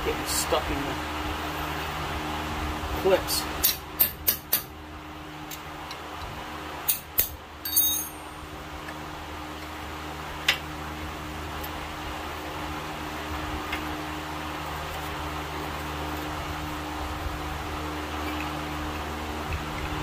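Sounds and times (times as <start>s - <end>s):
ringing metal clink: 7.6s - 8.4s.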